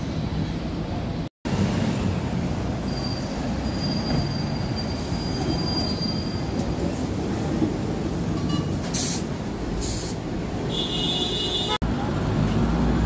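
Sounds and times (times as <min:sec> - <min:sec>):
tram wheels rumbling on rails: 0:00.0 - 0:10.7
high wheel squeal: 0:02.8 - 0:06.7.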